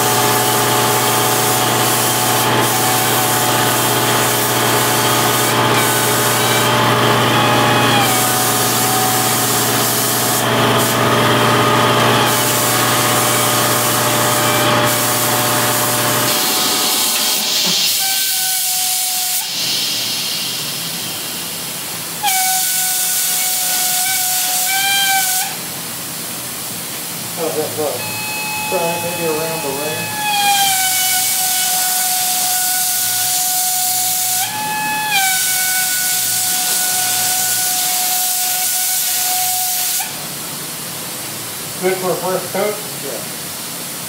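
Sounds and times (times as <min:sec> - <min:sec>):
air spray gun hissing: 0:00.0 - 0:44.0
wavering air whistle: 0:12.2 - 0:20.4, 0:22.2 - 0:25.6, 0:27.8 - 0:40.2.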